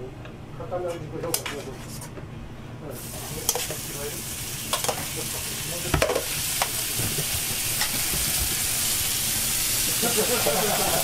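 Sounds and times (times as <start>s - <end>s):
vegetables sizzling in a pan: 3.0s - 11.0s.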